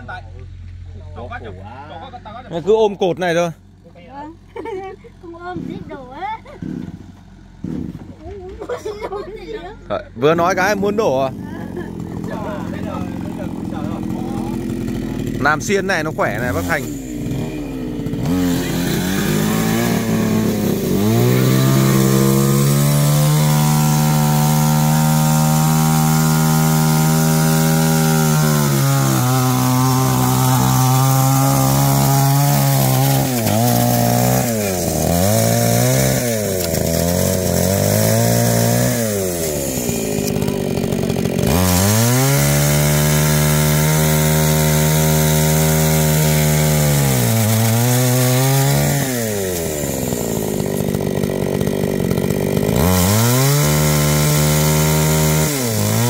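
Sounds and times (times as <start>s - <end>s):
chainsaw revving: 2.5s - 56.0s.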